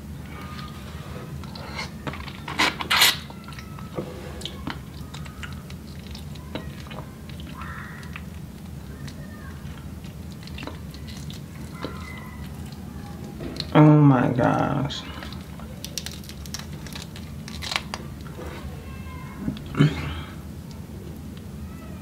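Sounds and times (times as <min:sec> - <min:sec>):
steady low hum: 0:00.0 - 0:22.0
eating sounds: 0:00.2 - 0:21.5
shrimp shell crackling: 0:15.3 - 0:18.4.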